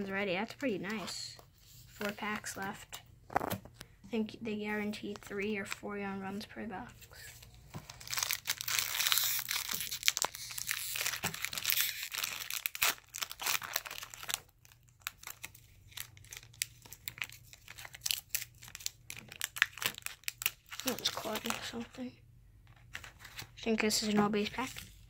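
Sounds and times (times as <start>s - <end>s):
foil wrapper crinkling: 7.9s - 22.0s.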